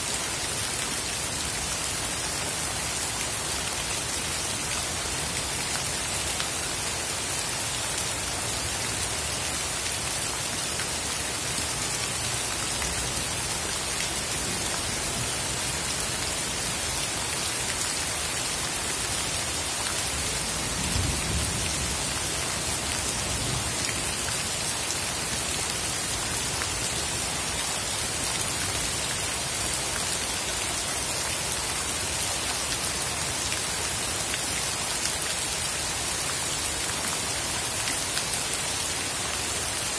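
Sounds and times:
heavy rain on standing water: 0.0s - 39.9s.

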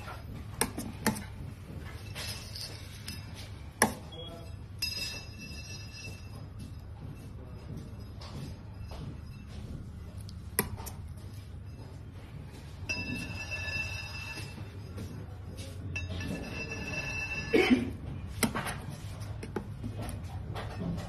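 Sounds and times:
high ringing tone: 1.8s - 10.4s, 11.1s - 18.0s.

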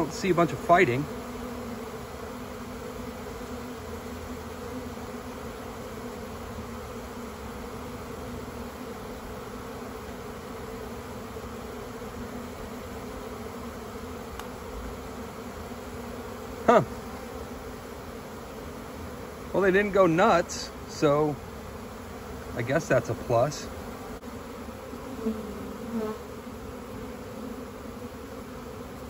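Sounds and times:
honeybees humming: 0.0s - 29.0s.

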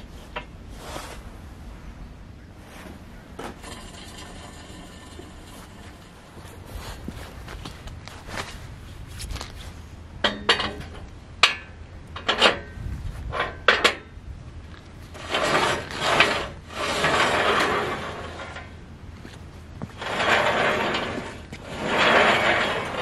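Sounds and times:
steel scraping on steel: 2.8s - 7.0s, 15.1s - 23.0s
steel tube clanking: 3.4s - 6.6s, 10.2s - 14.1s, 15.1s - 18.8s, 19.8s - 23.0s.

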